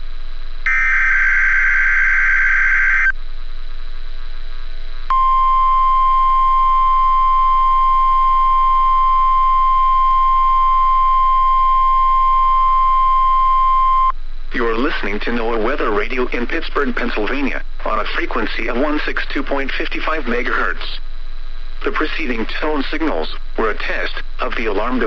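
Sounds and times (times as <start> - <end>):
buzzy digital data burst: 0.7 - 3.1
steady high alarm beep: 0.7 - 3.1, 5.1 - 14.1.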